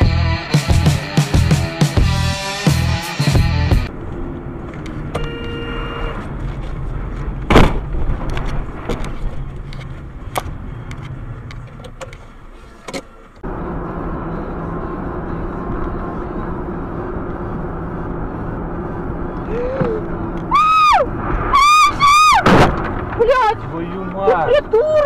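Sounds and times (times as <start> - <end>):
car road noise: 0.0 - 25.0
loud sharp bang: 7.5 - 9.0, 21.2 - 23.3.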